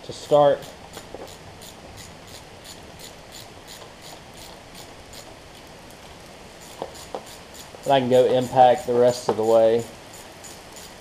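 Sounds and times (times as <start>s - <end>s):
steady background hiss: 0.0s - 11.0s
socket ratchet clicking: 6.7s - 7.7s.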